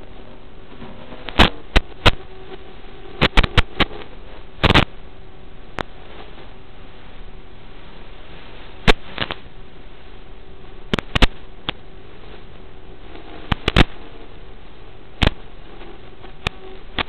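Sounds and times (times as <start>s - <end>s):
static hiss: 0.0s - 17.0s
sharp pops: 1.2s - 2.3s, 3.2s - 4.9s, 8.8s - 9.5s, 10.9s - 11.8s, 13.5s - 14.0s, 15.2s - 15.5s.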